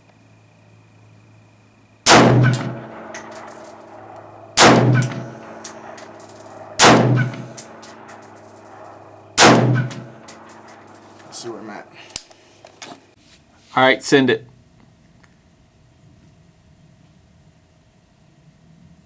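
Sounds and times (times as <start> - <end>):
rifle shots with echo: 2.1 - 11.9
light metal clinks: 2.5 - 12.2.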